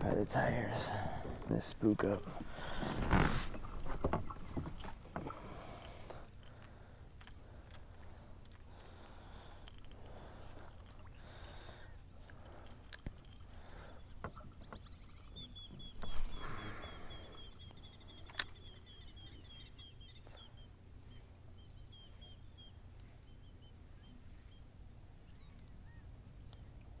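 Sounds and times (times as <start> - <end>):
small bird chirping: 13.9 - 26.7.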